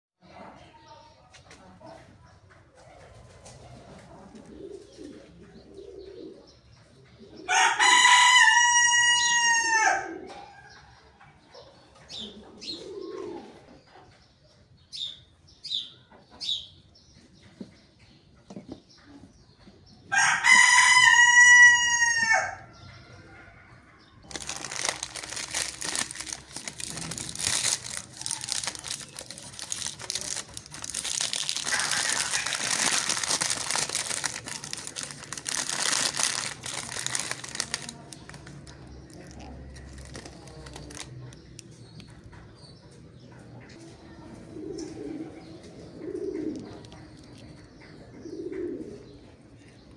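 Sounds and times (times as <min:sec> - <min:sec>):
rooster crowing: 0:07.5 - 0:10.2, 0:20.1 - 0:22.7
plastic packaging crinkling: 0:24.3 - 0:41.6.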